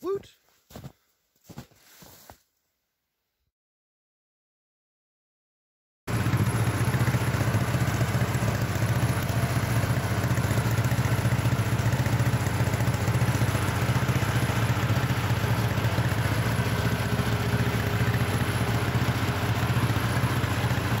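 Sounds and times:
crawler engine idling: 6.1s - 21.0s.

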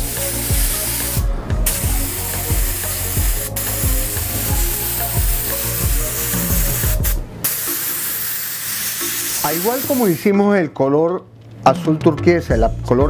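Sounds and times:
airbrush hissing: 0.0s - 10.2s
background music with steady beat: 0.0s - 10.4s, 11.5s - 13.0s.

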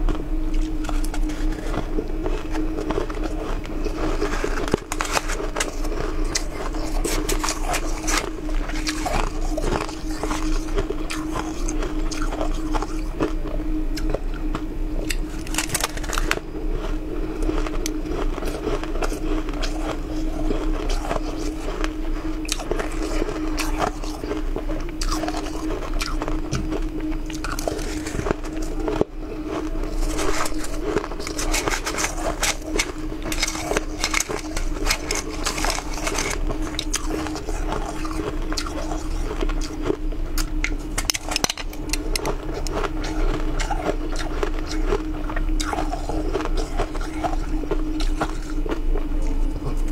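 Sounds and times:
person crunching shaved ice: 0.0s - 49.9s.

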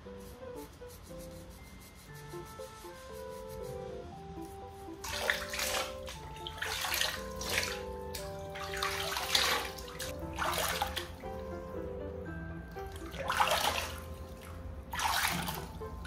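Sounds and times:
background music held notes: 0.0s - 16.0s
water splashing and trickling: 4.8s - 11.8s, 12.6s - 16.0s.

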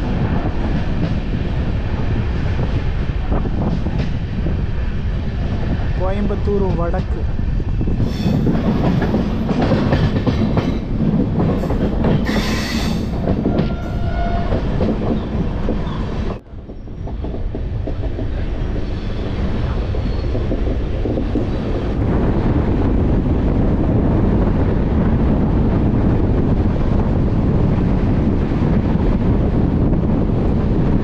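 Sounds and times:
train coach rumble: 0.0s - 31.0s
wheels clattering over rail joints: 8.1s - 21.6s.

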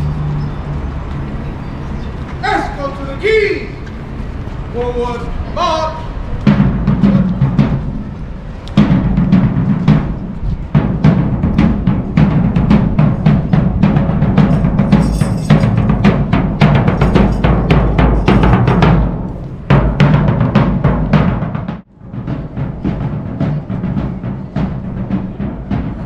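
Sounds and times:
marching drums beating: 5.6s - 26.0s.

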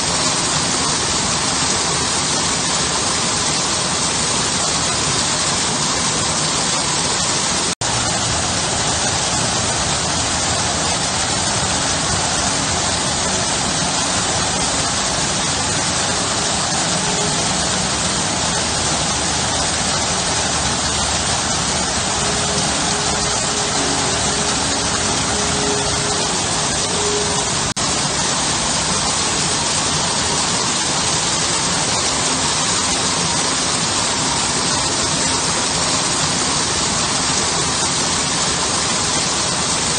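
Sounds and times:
water pouring over stone: 0.0s - 39.9s.

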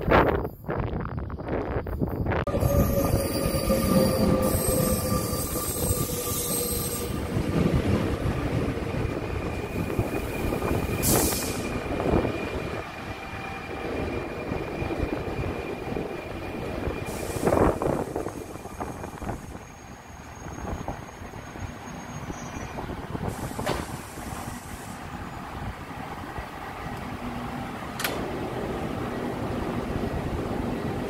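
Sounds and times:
train rumbling into station: 0.0s - 31.0s
thin steady squeal: 0.4s - 7.2s
short air hisses: 11.0s - 11.7s.

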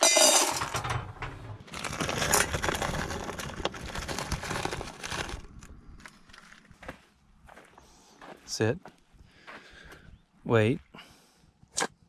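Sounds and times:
frozen beans clattering in metal bowl: 0.0s - 5.3s.

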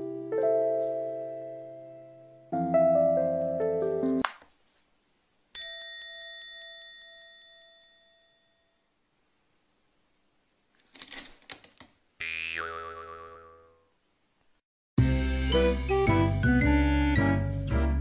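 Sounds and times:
bell-like ding: 5.6s - 8.9s
clicks and rustling: 10.7s - 12.0s.

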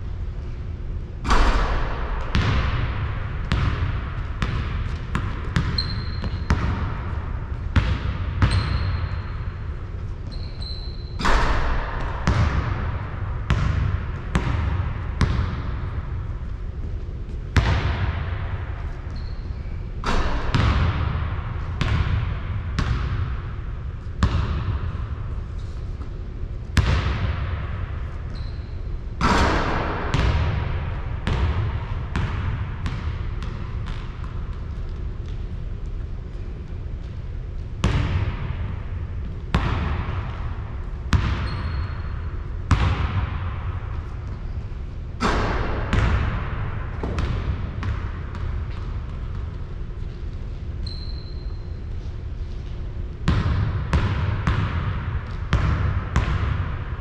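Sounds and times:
basketball bouncing on hard court: 1.2s - 23.6s, 24.2s - 25.2s, 26.7s - 36.4s, 37.8s - 51.7s, 53.2s - 57.0s
sneaker squeaks: 5.5s - 6.7s, 7.8s - 11.8s, 18.8s - 20.4s, 28.1s - 29.5s, 41.2s - 42.5s, 48.7s - 52.9s.

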